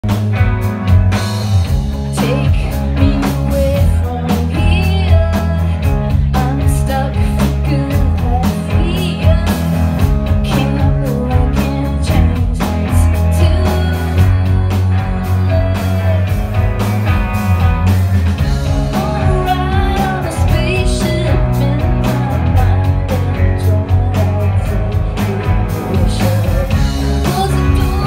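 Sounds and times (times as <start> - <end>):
bass guitar: 0.0 - 28.0
electric guitars: 0.0 - 28.0
steady drum beat: 0.0 - 28.0
woman singing: 2.0 - 16.6, 18.5 - 28.0.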